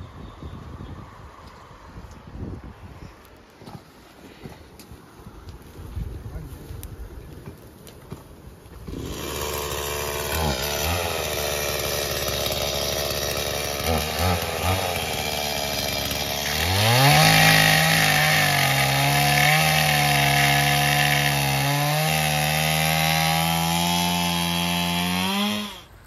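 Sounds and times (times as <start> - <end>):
chainsaw cutting branches: 8.7 - 25.9.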